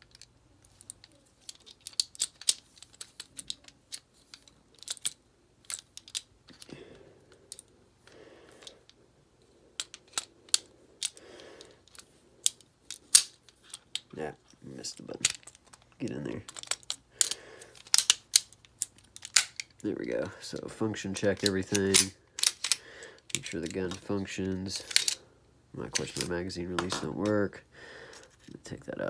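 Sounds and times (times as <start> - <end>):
pistol parts clicking: 0.0 - 6.7, 7.3 - 7.7, 9.7 - 19.8, 21.1 - 25.2, 25.8 - 27.4.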